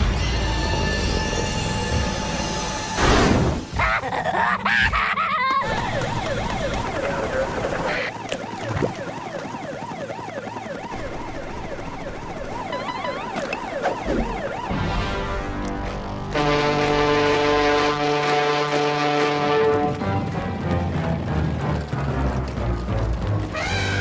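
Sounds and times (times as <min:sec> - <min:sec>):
cartoon police siren wailing: 0:04.7 - 0:15.4.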